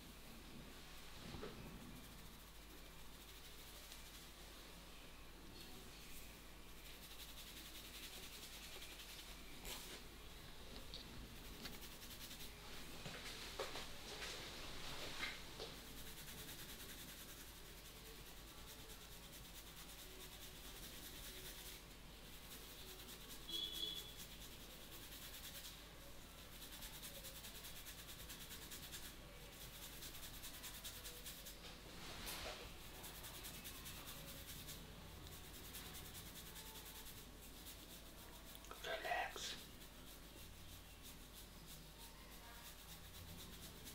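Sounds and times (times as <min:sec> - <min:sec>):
hands rubbing hair and scalp: 0:06.8 - 0:10.1, 0:10.8 - 0:25.8, 0:26.4 - 0:43.9.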